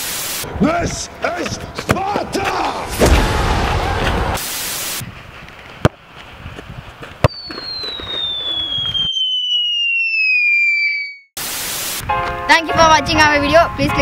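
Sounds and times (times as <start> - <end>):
tv static hiss: 0.0 - 0.4, 4.4 - 5.0, 11.4 - 12.0
falling bomb whistle: 7.3 - 11.3.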